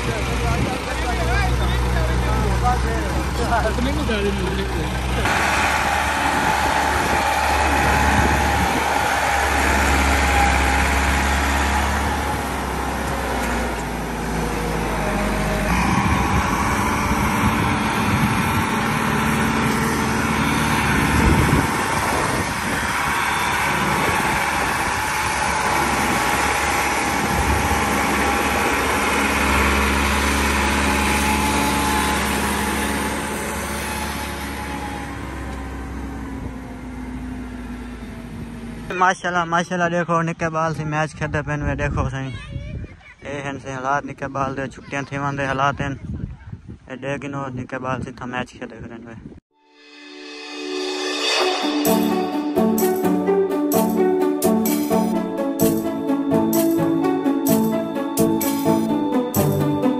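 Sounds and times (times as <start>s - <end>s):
tractor diesel engine running: 0.0s - 39.0s, 51.8s - 59.9s.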